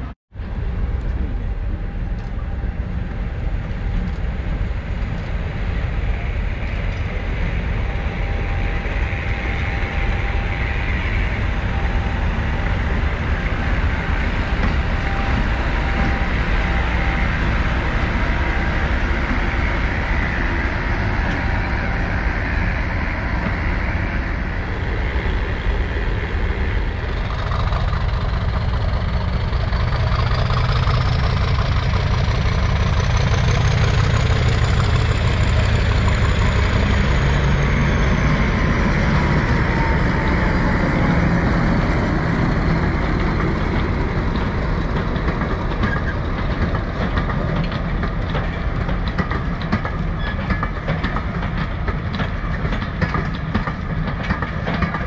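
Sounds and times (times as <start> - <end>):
diesel locomotive engine running: 0.0 - 55.0
high whine rising in pitch: 7.2 - 29.3.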